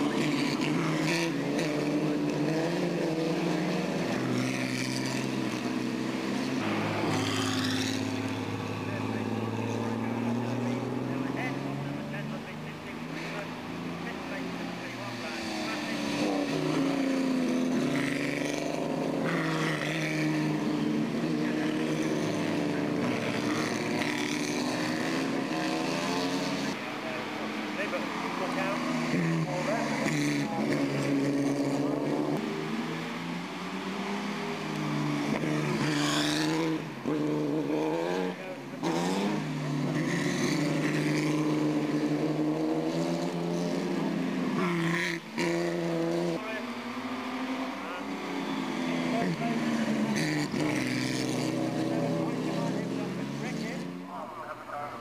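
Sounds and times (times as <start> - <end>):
racing car engines passing: 0.0 - 55.0.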